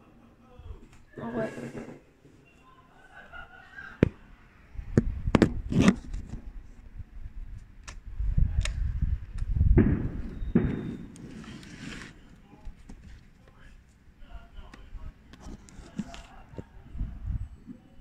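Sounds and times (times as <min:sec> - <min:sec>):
rubbing against microphone: 0:05.0 - 0:06.8, 0:11.2 - 0:13.3, 0:15.3 - 0:17.6.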